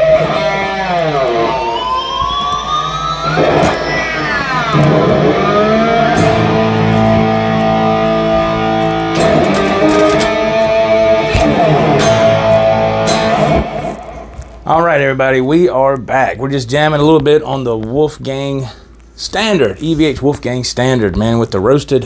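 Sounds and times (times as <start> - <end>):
electric guitar through an amp: 0.0 - 15.3.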